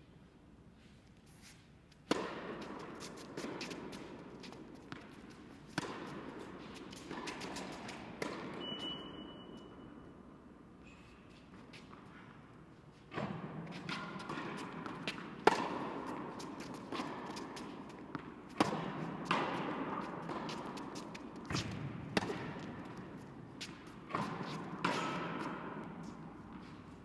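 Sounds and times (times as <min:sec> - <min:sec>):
racket hitting tennis ball: 0:01.3 - 0:09.2, 0:13.1 - 0:27.0
tennis ball bouncing: 0:02.0 - 0:09.2, 0:13.1 - 0:27.0.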